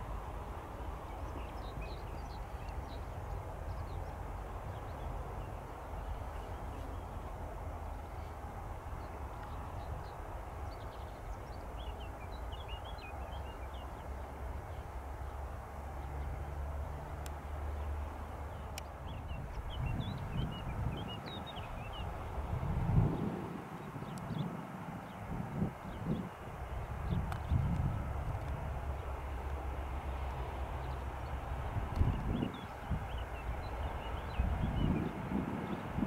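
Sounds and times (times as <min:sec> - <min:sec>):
distant jet engines rumbling: 0:00.0 - 0:36.0
small birds chirping: 0:00.8 - 0:16.5, 0:17.3 - 0:22.4.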